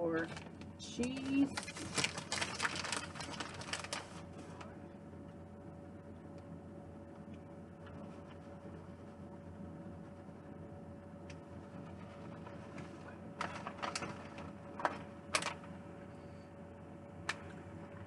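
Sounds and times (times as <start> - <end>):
faint steady hum: 0.0 - 18.0
plastic bag crinkling: 0.2 - 4.5, 12.3 - 15.7.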